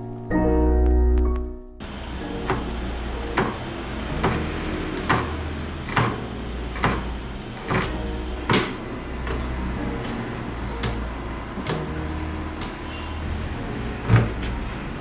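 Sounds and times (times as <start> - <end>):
knife chopping on cutting board: 2.4 - 2.7, 3.3 - 13.0, 14.0 - 14.6.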